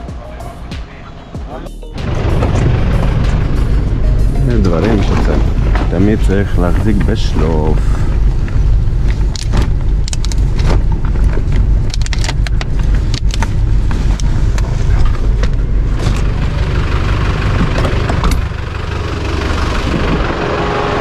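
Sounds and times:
outdoor noise: 0.0s - 21.0s
vehicle rumble: 0.0s - 21.0s
cargo rattling and knocking: 4.5s - 7.7s, 17.4s - 18.6s.

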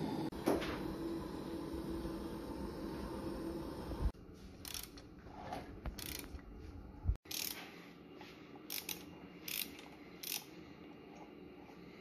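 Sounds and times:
ratchet wrench clicking: 4.6s - 5.0s, 6.0s - 6.3s, 7.2s - 7.6s, 8.7s - 10.5s.

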